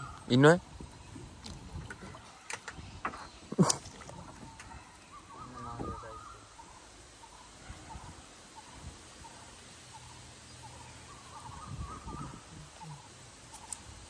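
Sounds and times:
net hauled against wooden canoe: 0.0s - 6.0s
water splashing: 0.8s - 2.8s, 3.4s - 6.2s
faint warbling call: 4.0s - 13.2s.

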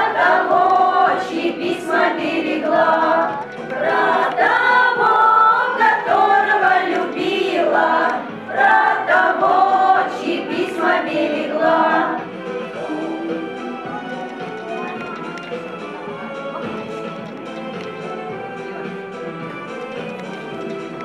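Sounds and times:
choir singing: 0.0s - 14.4s.

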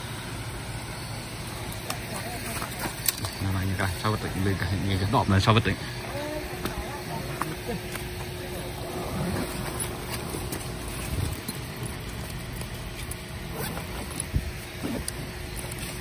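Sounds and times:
faint steady hum: 0.0s - 16.0s
backpack rustling and scuffing: 8.8s - 16.0s.

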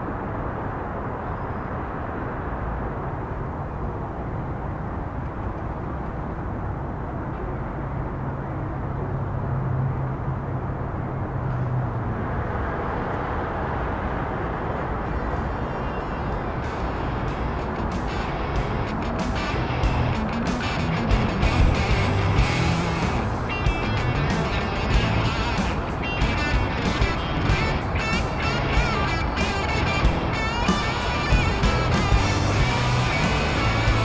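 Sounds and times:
low hum: 18.2s - 28.0s.

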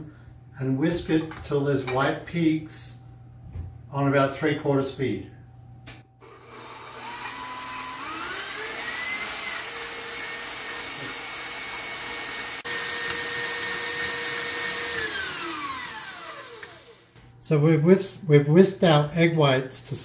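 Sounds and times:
stand mixer motor whining: 6.2s - 17.2s.

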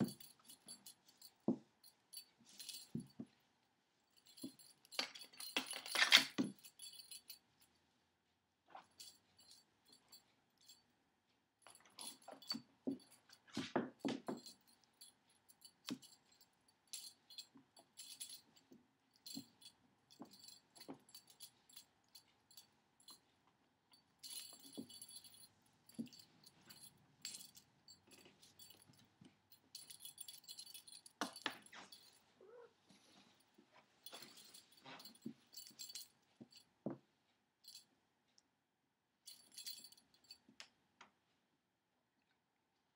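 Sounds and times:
metallic jingling: 23.9s - 32.7s.

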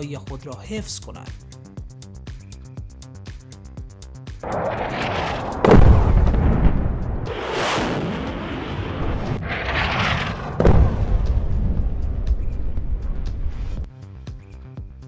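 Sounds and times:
jet rushing noise: 4.4s - 13.8s
deep explosion boom: 4.4s - 13.9s.

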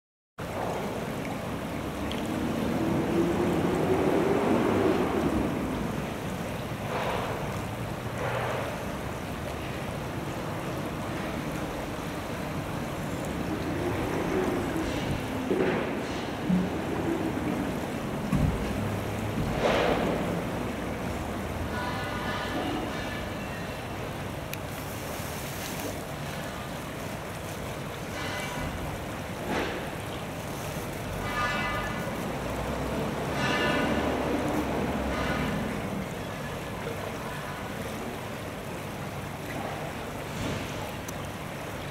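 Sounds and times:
stream water running: 0.4s - 41.9s.

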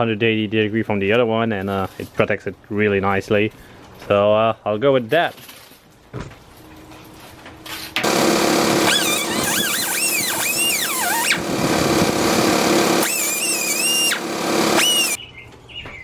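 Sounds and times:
grinder cutting metal with squeal: 8.1s - 15.2s.

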